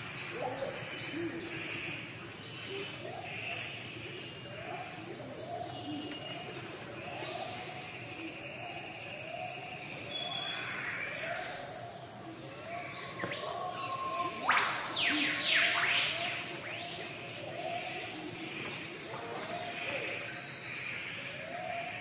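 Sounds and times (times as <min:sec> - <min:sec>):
steeply falling bird calls: 0:12.5 - 0:20.8.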